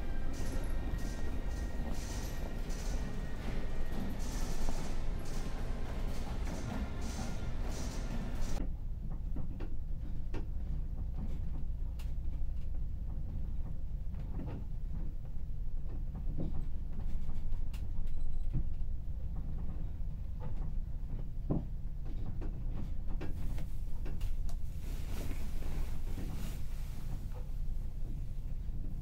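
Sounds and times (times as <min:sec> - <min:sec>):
ship engine drone: 0:00.0 - 0:08.6.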